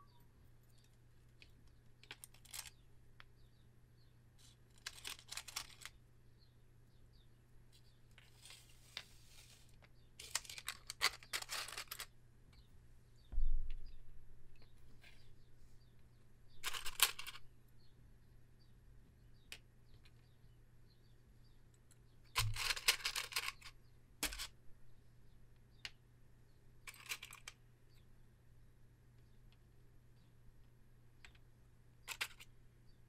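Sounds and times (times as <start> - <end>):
matches rattling in a box: 4.8 - 5.9, 10.2 - 12.1.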